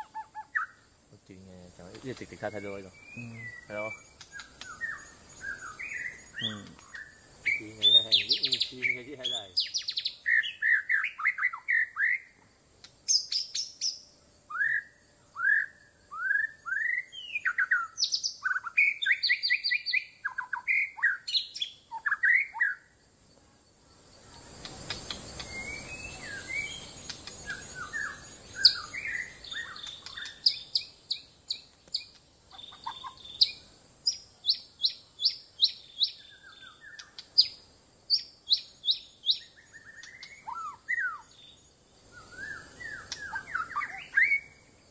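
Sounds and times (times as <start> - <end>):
songbird singing: 0.0 - 44.9
hiss: 24.2 - 28.6.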